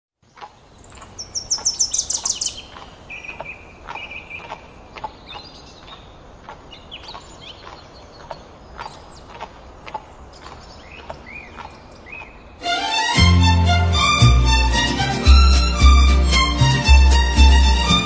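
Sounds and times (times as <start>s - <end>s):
songbirds chirping: 0.2s - 13.0s
bird trill: 1.0s - 4.5s.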